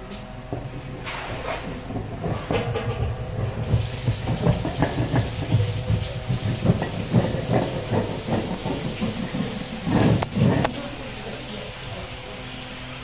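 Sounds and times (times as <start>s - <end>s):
steady hum: 0.0s - 13.0s
cutter roller clattering: 1.9s - 10.9s.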